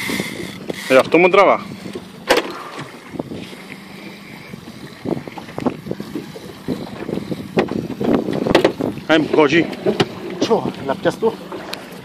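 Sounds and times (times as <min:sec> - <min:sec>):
sea waves washing: 0:00.0 - 0:12.0
wind buffeting microphone: 0:00.0 - 0:12.0
knocks on boat: 0:02.2 - 0:03.0, 0:07.0 - 0:10.7.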